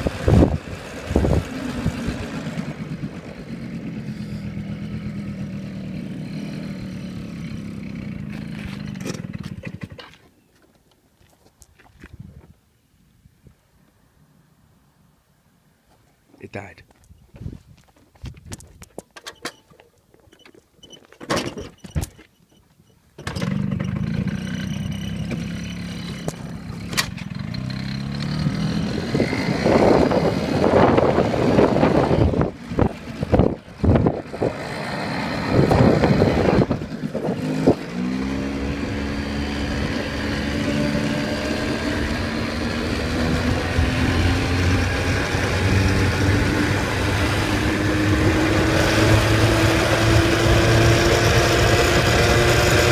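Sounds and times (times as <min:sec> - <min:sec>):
wind buffeting microphone: 0:00.0 - 0:02.3, 0:12.0 - 0:12.6, 0:17.0 - 0:18.9, 0:28.5 - 0:37.9
motorbike engine starting and revving: 0:00.0 - 0:10.2, 0:23.2 - 0:52.9.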